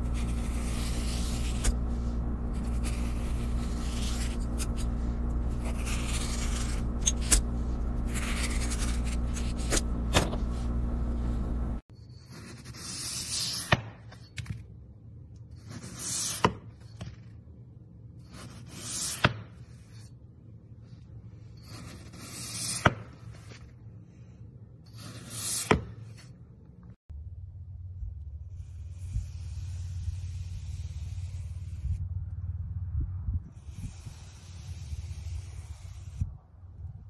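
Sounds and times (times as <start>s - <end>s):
knife slicing through foam: 0.0s - 10.8s, 12.2s - 14.3s, 15.6s - 17.3s, 18.2s - 20.1s, 21.6s - 23.7s, 24.9s - 26.4s, 28.5s - 32.0s, 33.6s - 36.3s
loud steady hum: 0.0s - 11.8s
blade cutting through thread: 0.0s - 14.2s, 33.6s - 36.3s.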